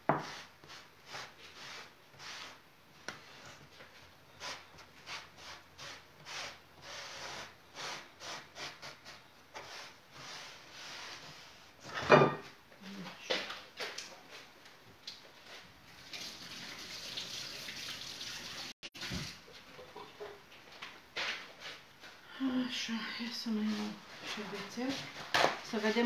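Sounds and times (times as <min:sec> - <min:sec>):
gloved hands rustling and rubbing: 0:23.5 - 0:26.0.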